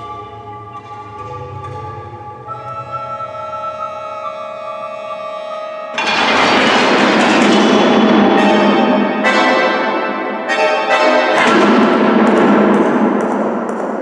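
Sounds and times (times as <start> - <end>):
held musical tone: 0.0 - 12.1
loud ringing ensemble chords: 0.0 - 13.6.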